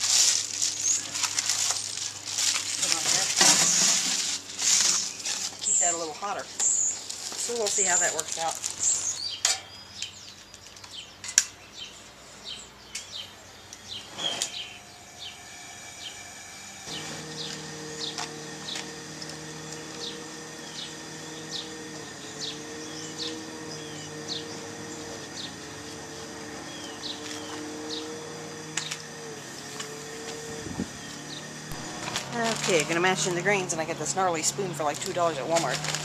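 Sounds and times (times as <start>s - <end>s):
bird chirping: 4.7s - 35.6s
steady low hum: 12.0s - 36.0s.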